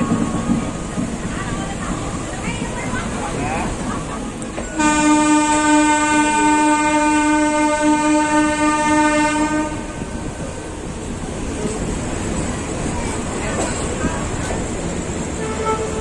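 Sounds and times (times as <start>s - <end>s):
train horn blast: 4.7s - 10.2s, 15.4s - 16.0s.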